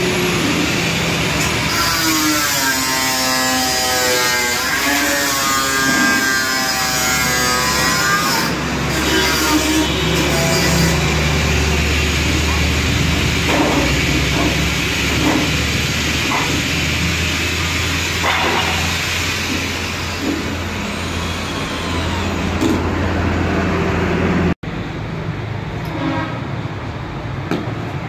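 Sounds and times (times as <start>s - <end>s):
electric drill boring into metal: 0.0s - 13.4s, 14.9s - 23.0s.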